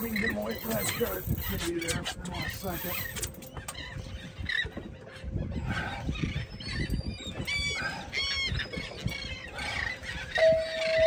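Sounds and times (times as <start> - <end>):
wind and water rumble: 0.0 - 11.0
bird calling: 5.8 - 11.0.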